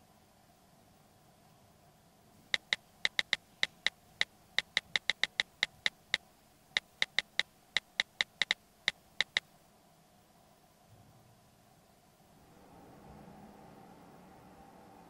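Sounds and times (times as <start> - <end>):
phone keyboard clicks: 2.5 - 6.2, 6.8 - 9.5.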